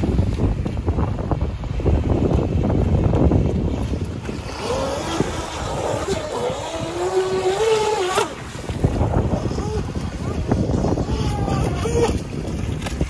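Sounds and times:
wind on microphone: 0.0 - 13.0
electric motor whining: 4.4 - 8.5, 9.3 - 12.2.

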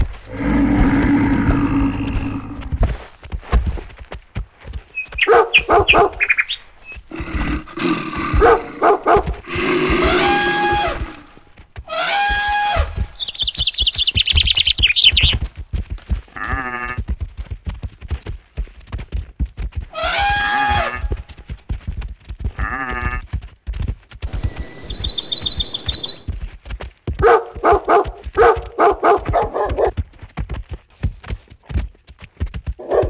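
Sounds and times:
thudding footfalls: 0.0 - 19.9
high bird trill: 5.0 - 7.1, 11.9 - 15.4, 24.3 - 26.3
rapid animal calls: 5.0 - 15.4.

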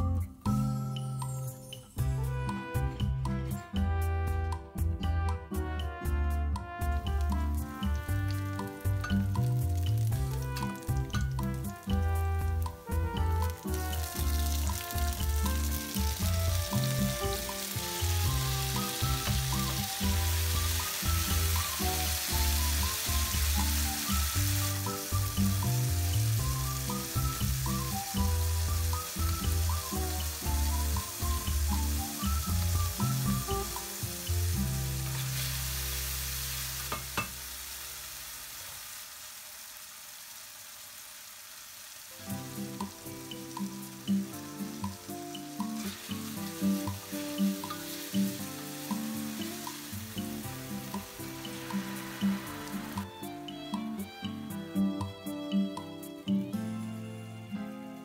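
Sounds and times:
background music with bass: 0.0 - 37.3
food sizzling in a pan: 5.5 - 58.0.

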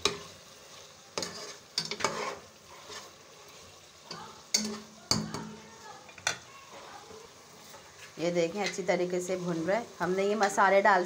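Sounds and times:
spatula scraping a pot: 0.0 - 3.8, 6.4 - 8.9
low sizzle of frying: 0.0 - 11.0.

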